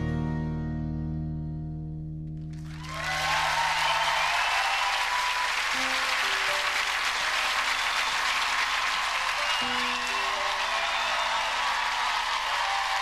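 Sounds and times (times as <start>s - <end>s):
acoustic guitar song: 0.0s - 2.6s
studio audience applause: 2.5s - 13.0s.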